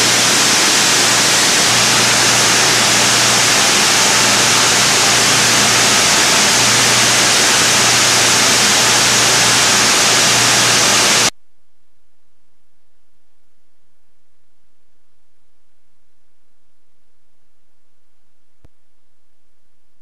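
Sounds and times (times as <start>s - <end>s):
loud hiss of fans and blower: 0.0s - 11.3s
faint low hum: 11.3s - 20.0s.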